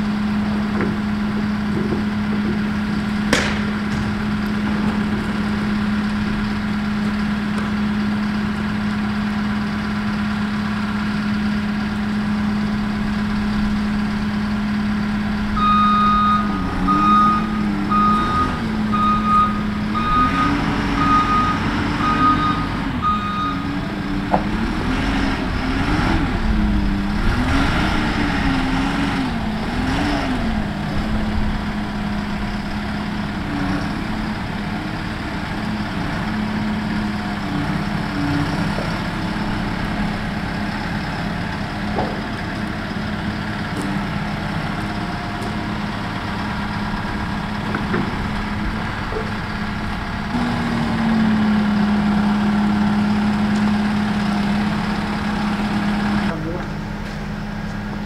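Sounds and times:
diesel engine revving: 0.0s - 58.0s
sharp knock: 3.3s - 4.4s
backup alarm beeping: 15.6s - 23.7s.

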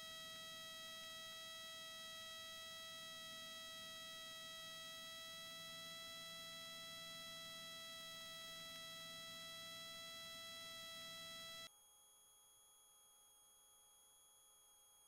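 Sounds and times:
high-pitched electrical whine: 0.0s - 11.7s.

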